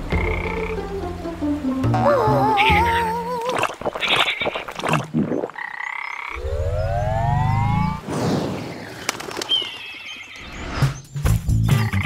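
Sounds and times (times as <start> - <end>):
cartoon frog croaking: 0.1 - 0.8
rising sliding tone: 6.4 - 8.0.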